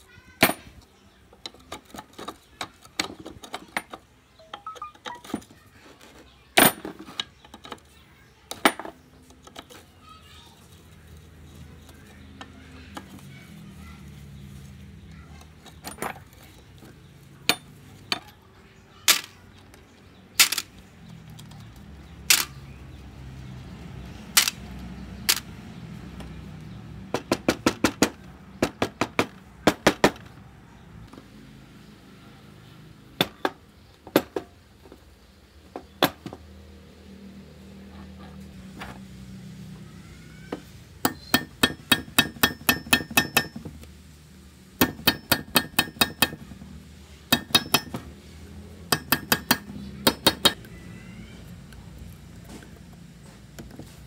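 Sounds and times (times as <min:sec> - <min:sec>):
hand tools tapping on metal: 0:00.3 - 0:09.9, 0:15.3 - 0:18.4, 0:19.1 - 0:22.6, 0:24.3 - 0:30.2, 0:40.5 - 0:43.9, 0:44.8 - 0:48.2, 0:48.8 - 0:50.7.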